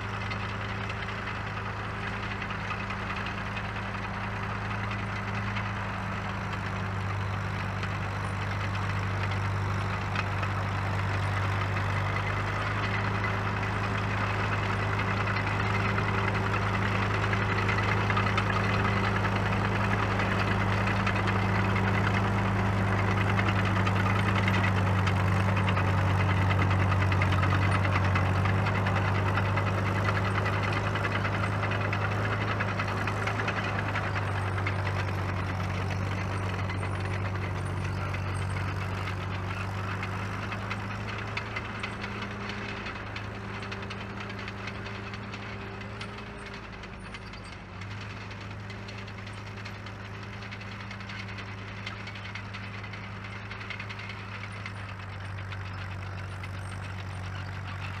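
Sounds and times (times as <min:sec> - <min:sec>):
diesel engine running steadily: 0:00.0 - 0:58.0.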